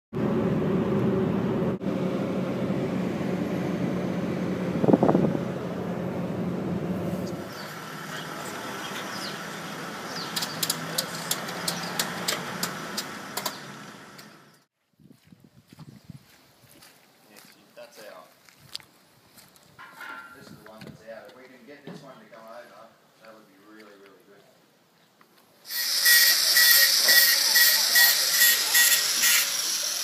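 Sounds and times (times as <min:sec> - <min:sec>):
vehicle engine and road hum: 0:00.2 - 0:14.7
sharp clicks: 0:10.3 - 0:13.6.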